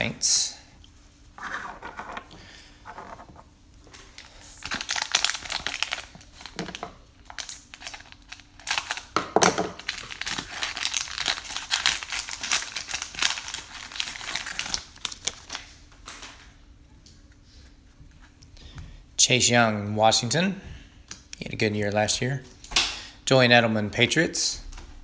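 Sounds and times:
plastic wrapper crinkling: 0:01.4 - 0:09.2, 0:09.8 - 0:16.4.

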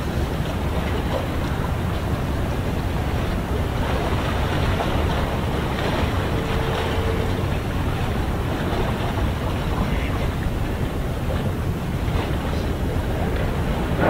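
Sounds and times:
sea rushing: 0:00.0 - 0:14.0
wind buffeting microphone: 0:00.0 - 0:14.0
faint steady tone: 0:06.1 - 0:08.2.

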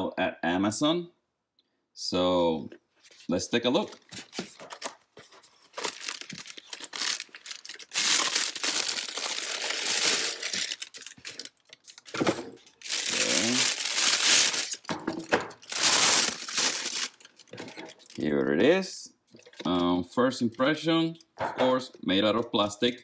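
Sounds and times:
plastic bag crinkling: 0:04.2 - 0:18.3.

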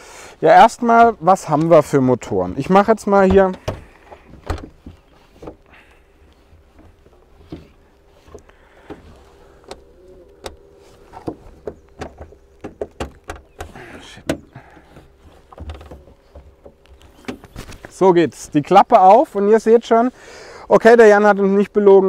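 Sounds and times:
faint steady hum: 0:00.0 - 0:22.0
hands clicking and knocking on car grille: 0:09.7 - 0:17.9.

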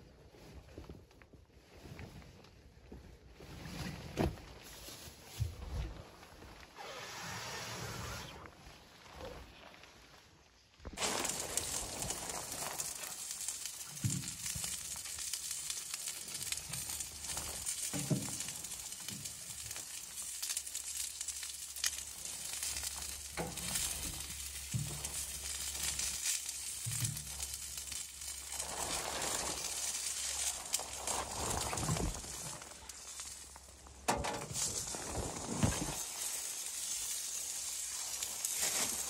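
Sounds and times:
rain on tent fabric: 0:11.0 - 0:39.0.

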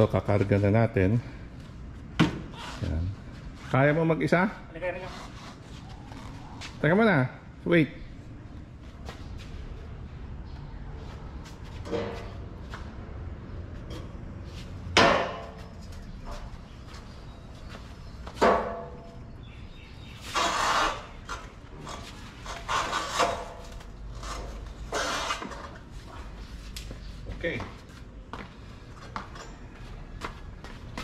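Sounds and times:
metal clattering and scraping: 0:11.8 - 0:12.5.

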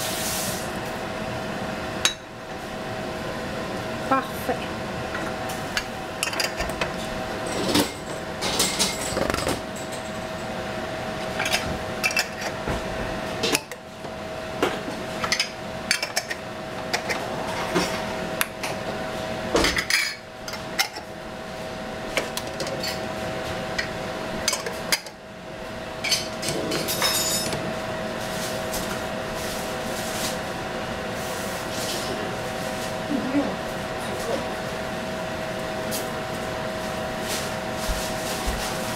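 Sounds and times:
steady background hum: 0:00.0 - 0:38.9.

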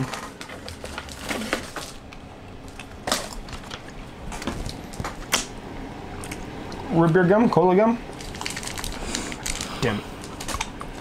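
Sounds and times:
candy packaging crackling: 0:00.0 - 0:05.6, 0:08.1 - 0:11.0.

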